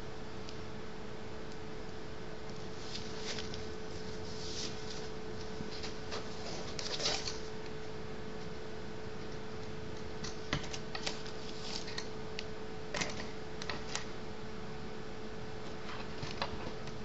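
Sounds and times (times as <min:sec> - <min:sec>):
steady hum: 0:00.0 - 0:17.0.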